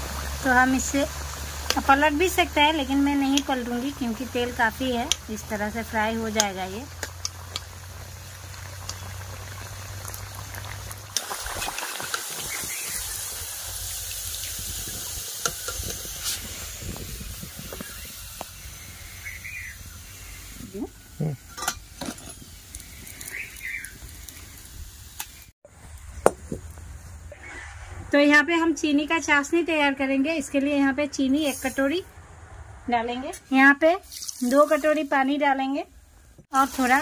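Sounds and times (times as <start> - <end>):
food sizzling in hot oil: 0.0 - 25.6, 31.3 - 32.0, 33.6 - 35.8, 36.4 - 37.0.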